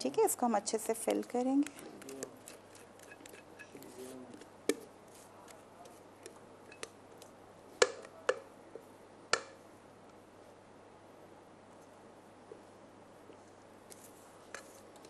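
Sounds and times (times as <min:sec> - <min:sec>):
batter being scraped: 0:01.2 - 0:06.4, 0:13.9 - 0:15.0.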